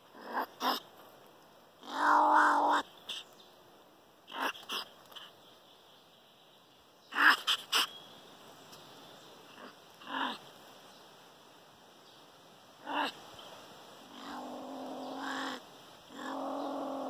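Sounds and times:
pine marten calling: 1.8s - 3.4s, 4.3s - 5.4s, 7.1s - 8.0s, 9.5s - 10.5s, 12.8s - 13.2s, 14.0s - 17.0s.

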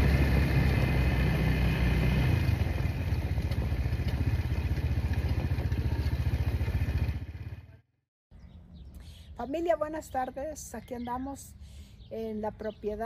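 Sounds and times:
small motorcycle engine running: 0.0s - 7.9s.

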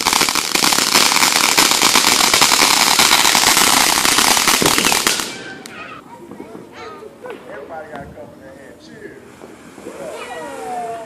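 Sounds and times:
firework fountain crackling hiss: 0.0s - 5.7s, 8.6s - 11.0s.

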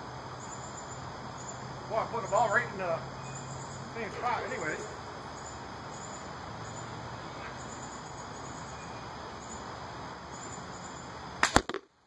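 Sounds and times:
insects chirping in pulses: 0.0s - 11.6s
outdoor background: 0.0s - 12.0s
sharp crack of arrow shot: 11.4s - 11.9s.

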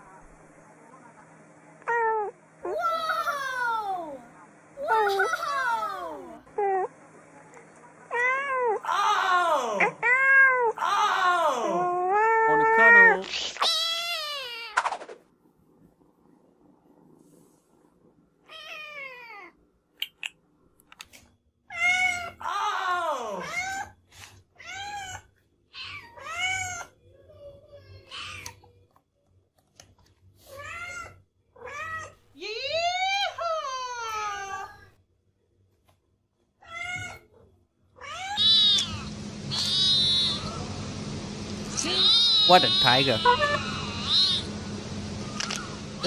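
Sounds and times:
kitten meowing: 38.1s - 40.6s, 41.9s - 44.5s
steady low hum: 38.4s - 46.0s.

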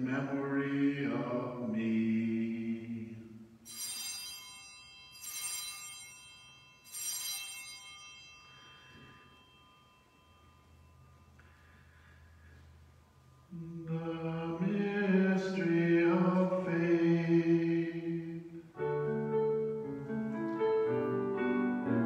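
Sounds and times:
altar bells ringing: 3.6s - 19.8s.

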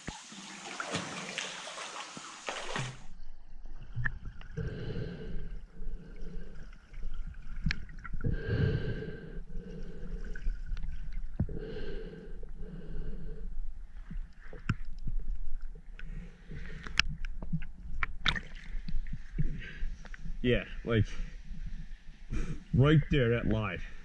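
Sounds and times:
breathing through snorkel tube: 4.6s - 6.8s, 8.2s - 10.6s, 11.5s - 13.6s.

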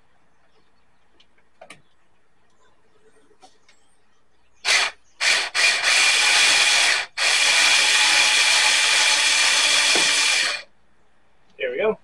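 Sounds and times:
electric screwdriver motor whirring: 4.7s - 10.6s.

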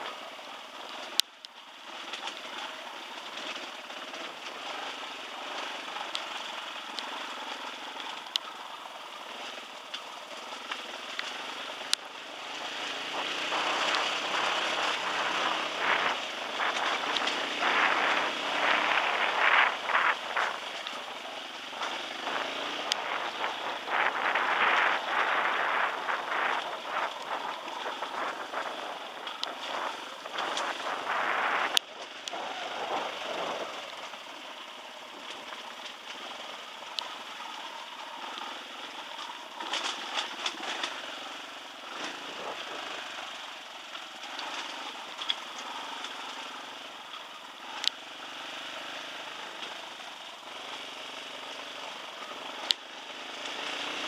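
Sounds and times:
dirt bike engine running: 0.0s - 54.0s
loud rushing noise: 12.9s - 33.8s.

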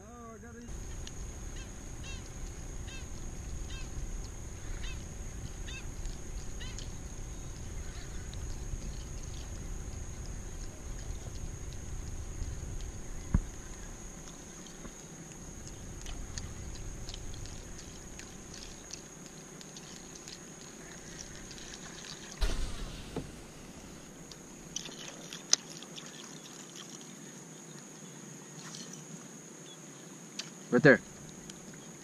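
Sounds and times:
faint high-pitched whine: 0.0s - 25.1s
light wind rumble: 0.6s - 19.2s, 22.4s - 25.0s
sharp knock: 22.4s - 24.9s
thump: 22.4s - 24.9s.

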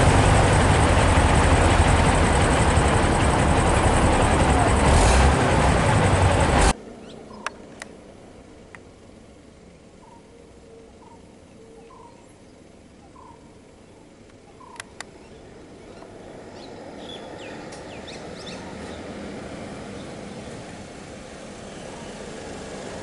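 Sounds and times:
truck engine idling: 0.0s - 6.8s
bird calling rising notes: 6.9s - 7.7s, 10.0s - 19.2s
high bird chirps: 10.0s - 13.5s, 14.5s - 19.0s
sharp clicks: 14.2s - 15.2s.

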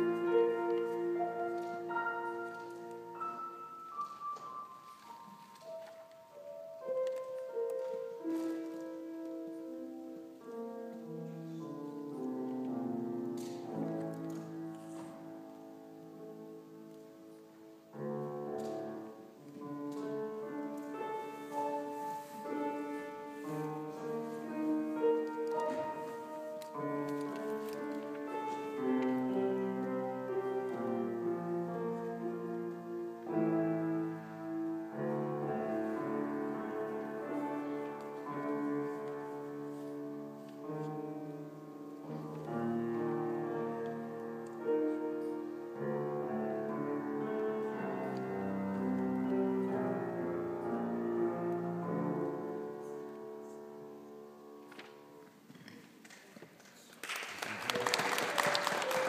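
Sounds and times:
solo piano piece: 0.0s - 55.5s.

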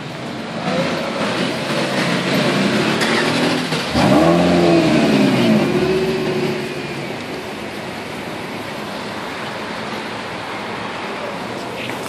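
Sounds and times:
car engines revving: 0.0s - 12.0s
loud car engine rev passing: 0.5s - 7.4s.

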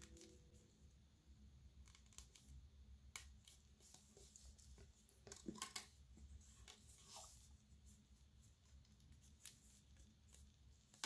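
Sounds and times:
low steady hum: 0.0s - 11.0s
plastic straws clicking and rustling: 5.0s - 6.0s.

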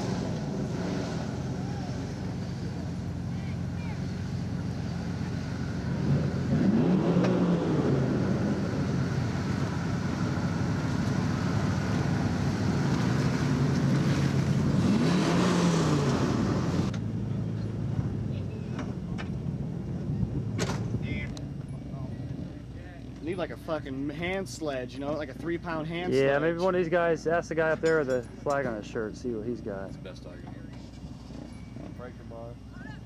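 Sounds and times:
pickup engine revving: 4.2s - 17.0s.

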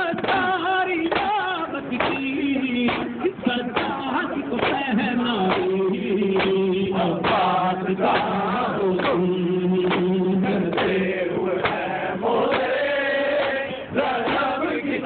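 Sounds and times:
men chanting in unison: 0.0s - 15.0s.

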